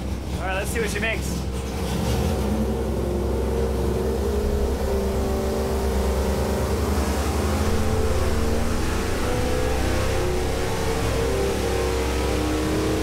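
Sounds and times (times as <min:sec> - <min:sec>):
engine running under load: 0:00.0 - 0:13.0.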